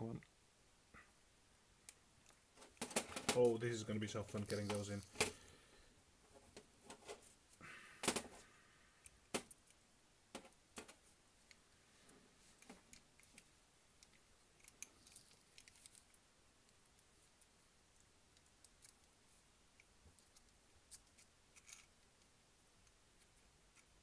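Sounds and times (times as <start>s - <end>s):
small parts clicking and tapping: 4.3s - 5.5s, 12.6s - 24.0s.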